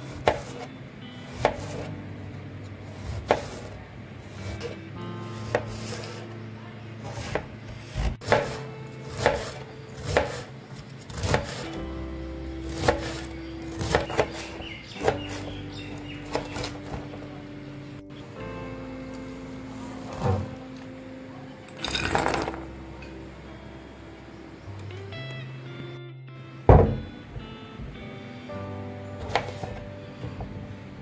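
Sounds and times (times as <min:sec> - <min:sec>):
faint background music: 0:00.0 - 0:31.0
knife chopping cabbage: 0:00.1 - 0:00.7, 0:01.3 - 0:01.9, 0:02.9 - 0:03.7, 0:04.3 - 0:06.2, 0:07.0 - 0:11.7, 0:12.7 - 0:15.6, 0:16.2 - 0:17.1, 0:29.2 - 0:29.8.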